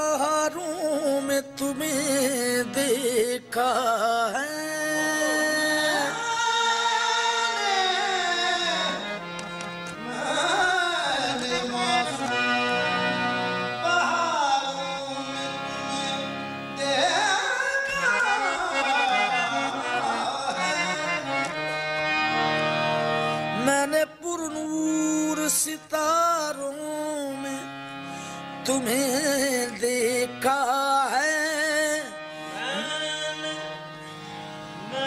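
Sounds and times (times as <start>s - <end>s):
tabla: 0.0s - 22.3s
harmonium: 0.0s - 35.0s.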